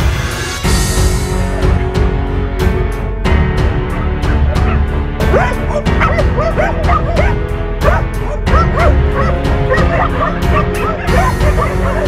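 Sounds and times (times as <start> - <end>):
background music with steady beat: 0.0 - 12.0
dogs barking and yelping: 3.9 - 12.0.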